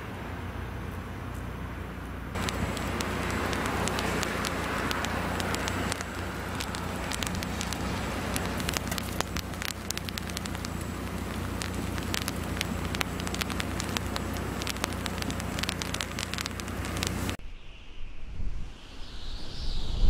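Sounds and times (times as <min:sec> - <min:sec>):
steady low hum: 0:00.4 - 0:17.4
freezing rain hissing and ticking: 0:02.3 - 0:17.4.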